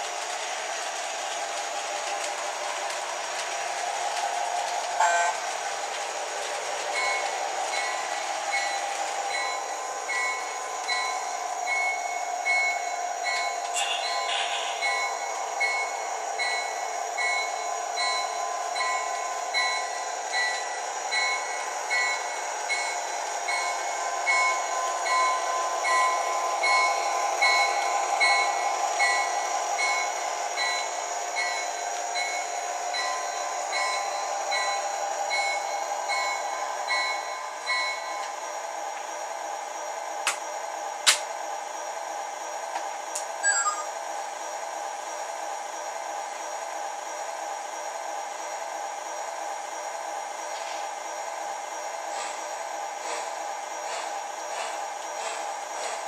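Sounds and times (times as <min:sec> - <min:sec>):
model train running hum: 0:00.0 - 0:56.0
locomotive bell ringing: 0:11.0 - 0:20.6, 0:43.4 - 0:43.9
brief loud tone: 0:13.7 - 0:15.1, 0:43.4 - 0:44.0.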